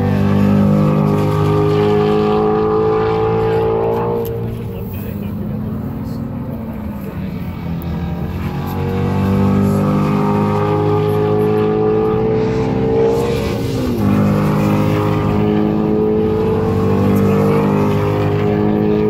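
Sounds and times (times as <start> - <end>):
race car engine passing: 0.0 - 19.0.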